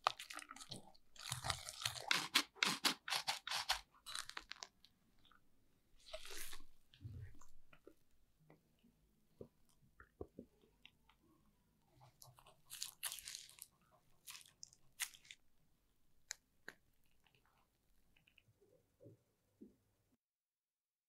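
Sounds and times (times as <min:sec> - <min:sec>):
plastic piping bag crinkling: 0:00.0 - 0:04.9, 0:06.0 - 0:06.7, 0:12.3 - 0:15.4.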